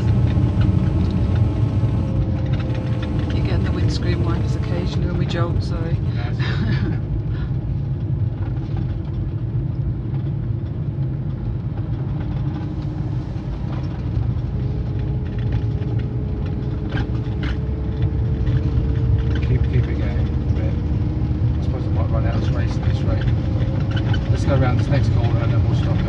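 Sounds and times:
faint rising tone: 0:00.0 - 0:05.6.

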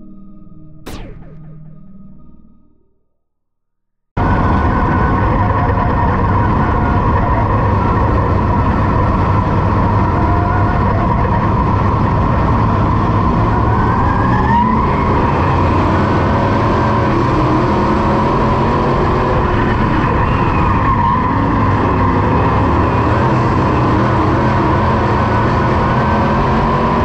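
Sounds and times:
race car engine from cockpit: 0:04.2 - 0:27.0.

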